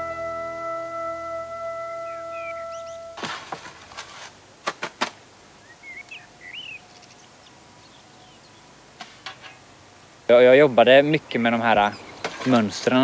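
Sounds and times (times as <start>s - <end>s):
bird chirping: 0.0s - 3.2s, 5.5s - 9.6s, 11.4s - 12.5s
shovel scraping soil: 3.2s - 4.8s, 12.2s - 12.9s.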